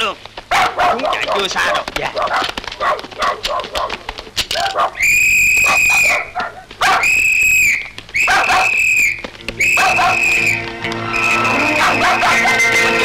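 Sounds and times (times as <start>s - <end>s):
dogs barking: 0.5s - 5.0s, 5.6s - 7.2s, 8.2s - 8.8s, 9.6s - 10.6s, 11.4s - 13.0s
shrill whistle blasts: 5.0s - 6.2s, 6.9s - 13.0s.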